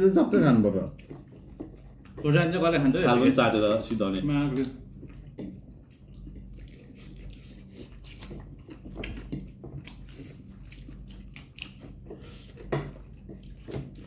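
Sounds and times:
low steady hum: 0:00.0 - 0:14.0
wet chewing and mouth sounds: 0:00.0 - 0:14.0.

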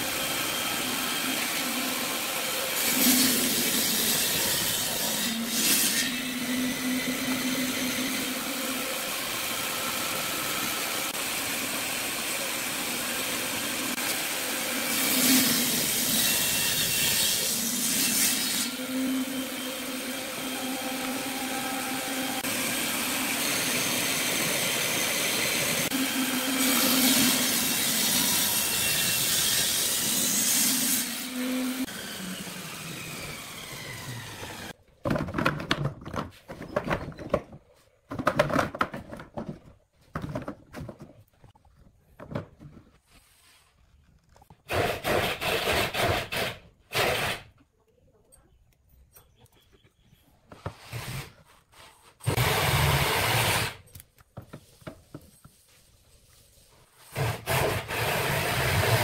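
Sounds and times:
tool cutting spinning wood: 0:00.0 - 0:34.8, 0:44.5 - 0:47.5, 0:52.2 - 0:53.8, 0:57.0 - 0:59.0
wood lathe running: 0:18.6 - 0:34.8.

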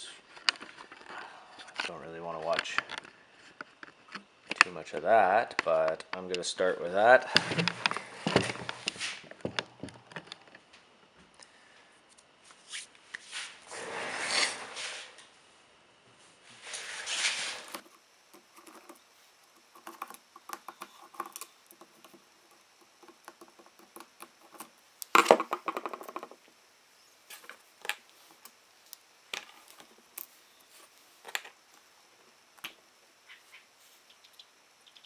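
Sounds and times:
rustle: 0:07.1 - 0:09.4, 0:11.6 - 0:20.8, 0:21.4 - 0:35.0
parts clattering: 0:16.7 - 0:26.6, 0:27.2 - 0:31.9
small parts clicking and tapping: 0:17.6 - 0:26.5, 0:27.3 - 0:31.9.

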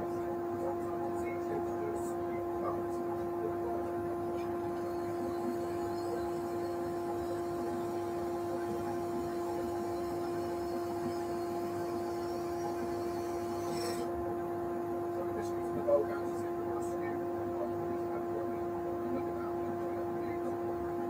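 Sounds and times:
wood lathe hum: 0:04.3 - 0:14.2.

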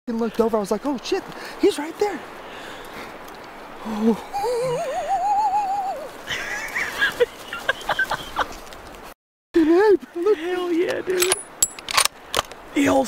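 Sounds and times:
long wavering cry: 0:04.3 - 0:06.2.

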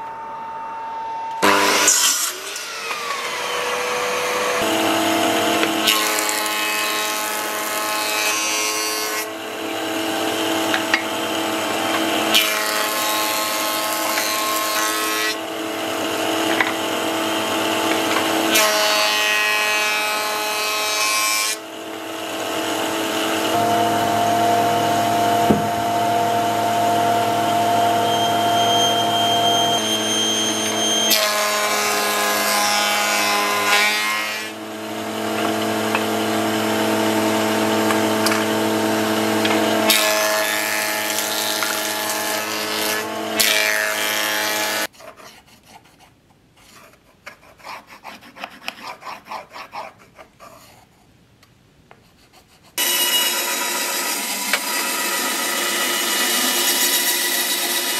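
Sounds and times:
table saw cutting wood: 0:01.4 - 0:44.9, 0:52.8 - 0:57.9
pencil scratching on wood: 0:44.9 - 0:51.1, 0:51.9 - 0:52.8.

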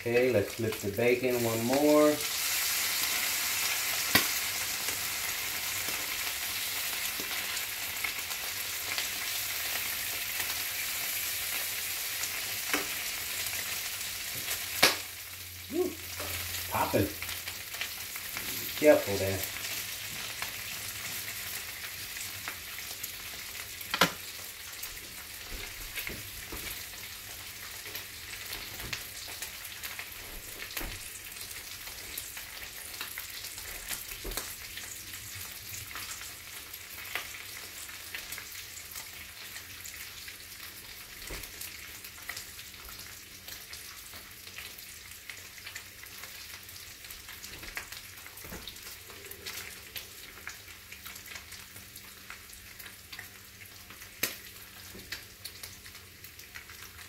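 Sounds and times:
bacon sizzling in a skillet: 0:00.0 - 0:57.0
grease popping and crackling: 0:04.0 - 0:05.0, 0:14.3 - 0:15.2, 0:22.3 - 0:34.8, 0:45.4 - 0:57.0.

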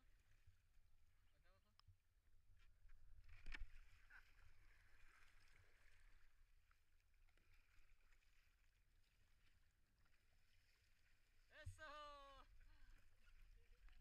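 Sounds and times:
river water lapping: 0:03.2 - 0:14.0.

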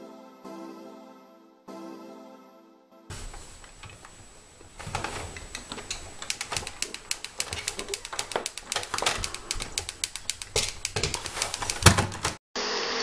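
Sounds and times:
cat flap rattling: 0:03.1 - 0:12.4
rapid irregular clicking and tapping: 0:03.1 - 0:12.4.

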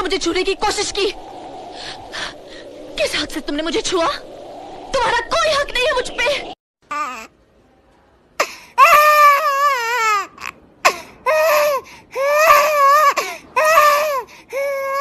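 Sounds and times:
baby crying: 0:08.8 - 0:15.0.

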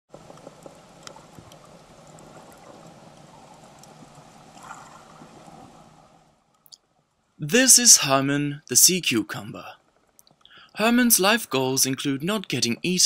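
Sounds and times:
sharp clicks and crackles: 0:00.1 - 0:05.7, 0:09.8 - 0:10.6
low hum: 0:00.1 - 0:07.6.

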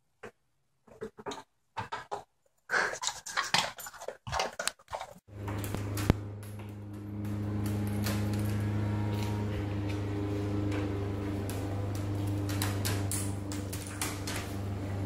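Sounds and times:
steady low hum: 0:05.3 - 0:15.0.

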